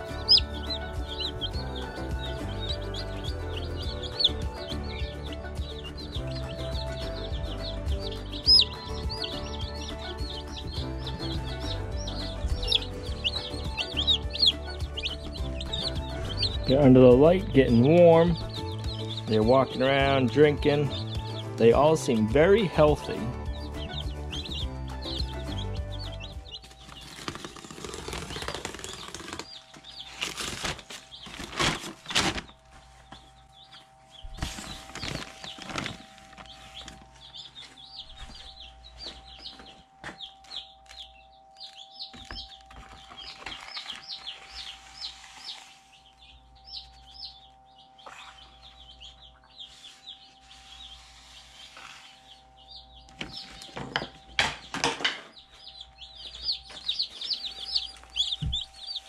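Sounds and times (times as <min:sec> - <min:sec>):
chicks peeping: 0:00.0 - 0:59.0
feed bag rustling: 0:26.6 - 0:38.6.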